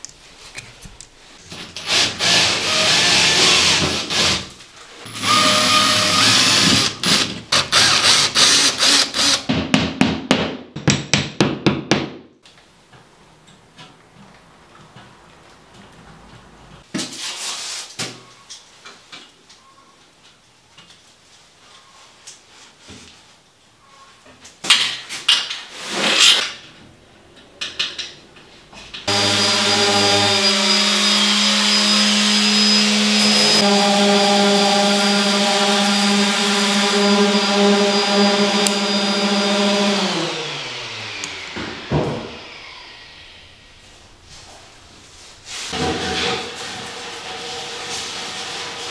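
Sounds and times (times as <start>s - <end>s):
electric orbital sander running: 29.1s - 43.6s.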